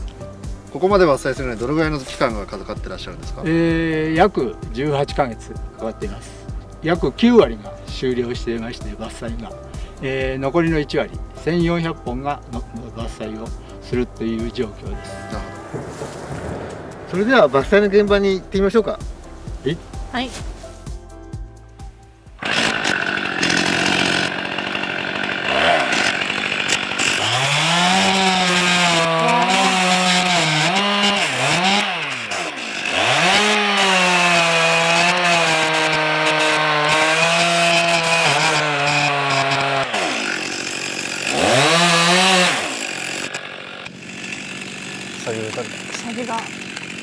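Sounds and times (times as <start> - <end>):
chainsaw cutting wood: 22.4 - 47.0.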